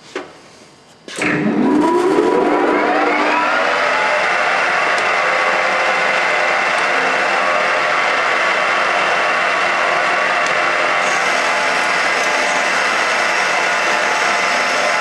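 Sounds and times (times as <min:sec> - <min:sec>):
lathe mechanical whir: 0:01.2 - 0:15.0.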